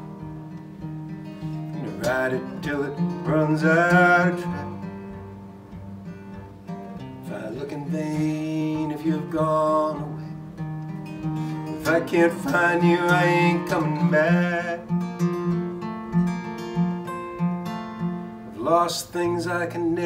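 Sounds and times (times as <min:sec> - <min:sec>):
acoustic guitar strumming: 0:00.0 - 0:20.0
man singing: 0:01.7 - 0:04.9, 0:07.2 - 0:10.4, 0:11.4 - 0:15.1, 0:18.5 - 0:20.0.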